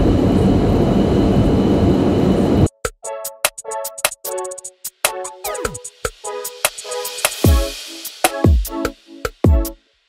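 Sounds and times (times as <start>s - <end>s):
sharp clicking percussion: 2.8s - 9.8s
booming kick drum: 7.5s - 7.7s.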